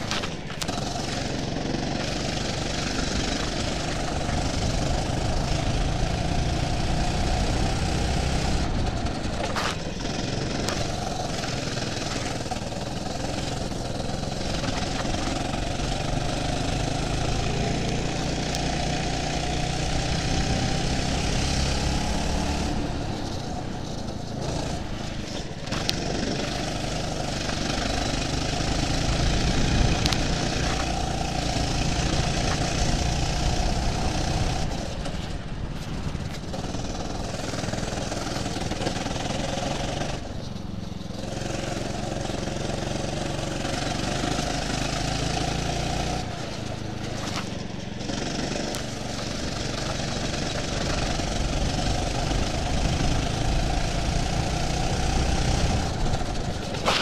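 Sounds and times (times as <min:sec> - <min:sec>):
go-kart engine running: 0:00.0 - 0:57.0.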